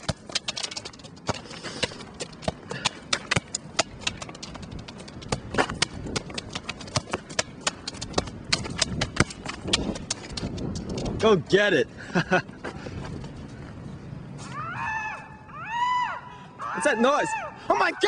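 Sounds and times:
soccer ball kicked on asphalt: 0.0 - 11.2.

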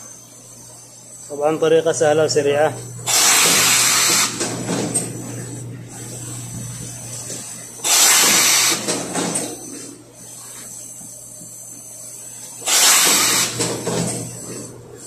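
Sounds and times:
steady low hum: 0.0 - 12.7, 13.4 - 15.0
hissing steam bursts: 3.1 - 4.4, 7.8 - 8.9, 12.6 - 13.6.

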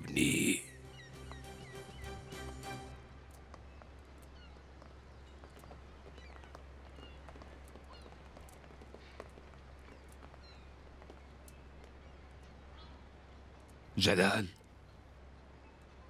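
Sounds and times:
small birds chirping: 0.0 - 16.0
musical chord: 0.6 - 3.3.

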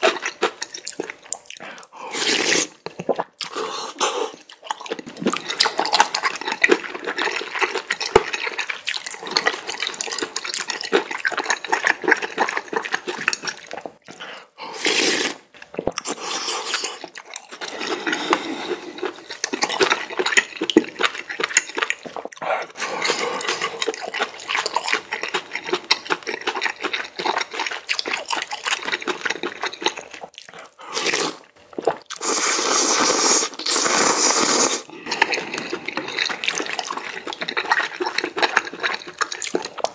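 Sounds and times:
wet chewing and mouth clicks: 0.0 - 39.9
loud slurps of noodles: 2.1 - 2.8, 14.7 - 19.2, 30.9 - 35.9.

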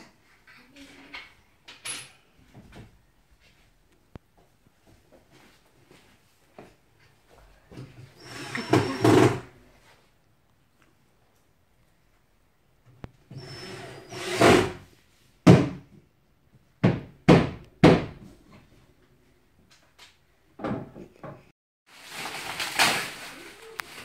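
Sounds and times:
knocks on wooden panels: 15.4 - 15.9, 16.8 - 18.2
plastic wrap rustling: 21.9 - 24.0.

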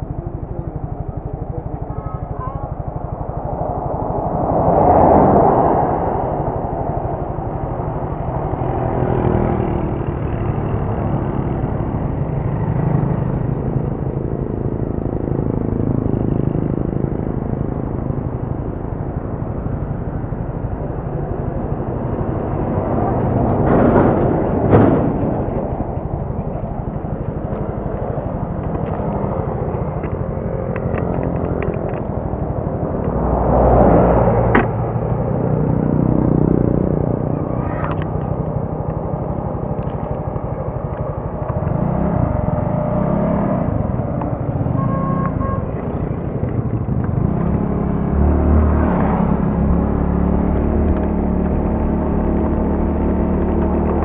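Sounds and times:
motorcycle engine idling: 0.0 - 3.6.

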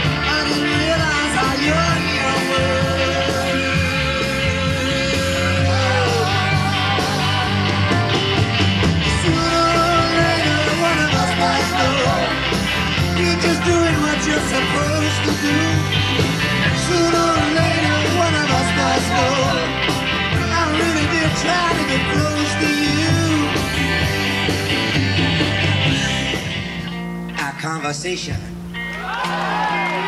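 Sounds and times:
live rock band playing: 0.0 - 30.0.

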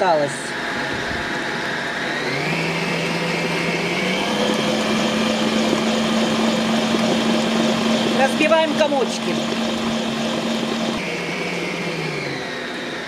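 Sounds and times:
stand mixer motor hum: 0.0 - 13.0.

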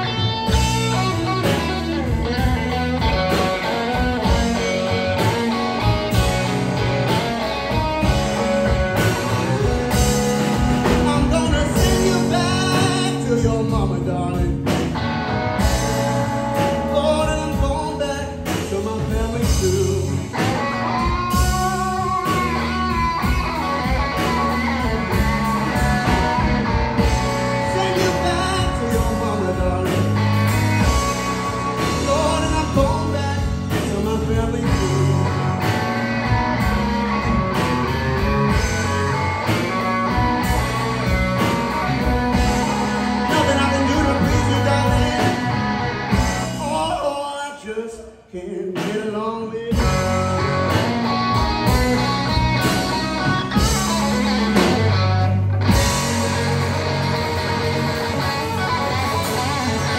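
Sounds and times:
drum kit: 0.0 - 47.3, 48.5 - 59.9
electric guitar: 0.0 - 47.8, 48.7 - 59.9
electric bass: 0.0 - 59.9
man singing: 10.6 - 14.9, 15.7 - 22.6, 27.0 - 35.8, 42.3 - 50.8.

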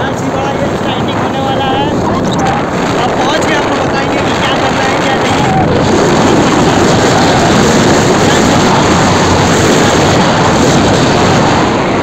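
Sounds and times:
wind rush on microphone: 0.0 - 12.0.

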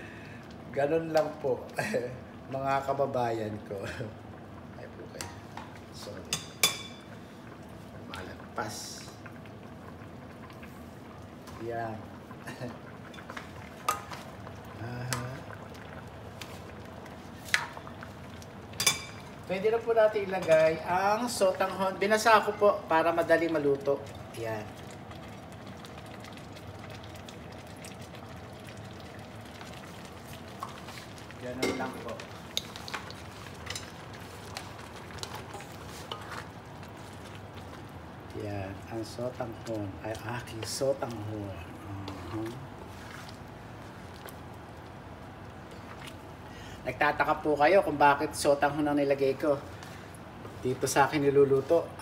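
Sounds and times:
soup simmering: 0.0 - 52.0
metal utensil clinking on pot: 31.6 - 31.9.

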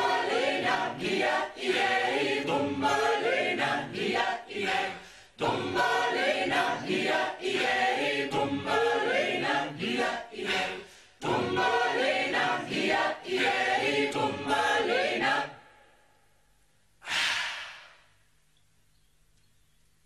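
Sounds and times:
voices singing a chant: 0.0 - 16.0
short burst of hiss: 17.0 - 18.1.

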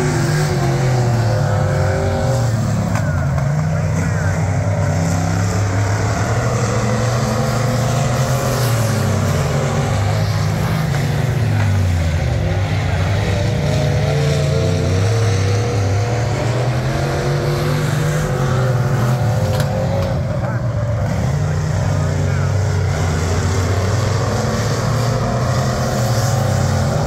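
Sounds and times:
race car engines droning: 0.0 - 27.0.

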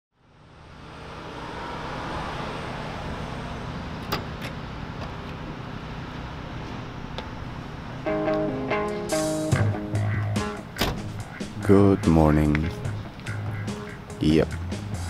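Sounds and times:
traffic noise: 0.1 - 15.0.

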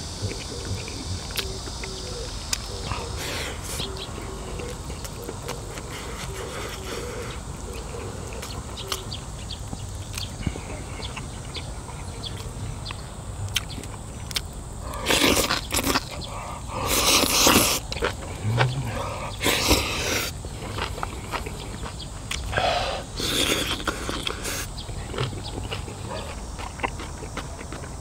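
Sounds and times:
chewing: 0.2 - 28.0
loud mouth sounds: 15.0 - 20.4.

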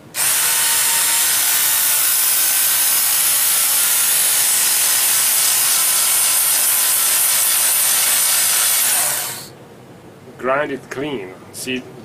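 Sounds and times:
electric grinder grinding steel: 0.1 - 9.5.

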